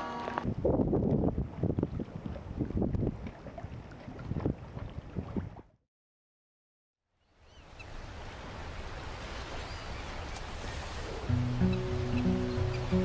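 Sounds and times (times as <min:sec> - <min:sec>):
wind and waves: 0:00.0 - 0:05.8, 0:07.2 - 0:13.0
water lapping: 0:01.4 - 0:05.7, 0:07.8 - 0:13.0
faint bird chirps: 0:11.3 - 0:13.0.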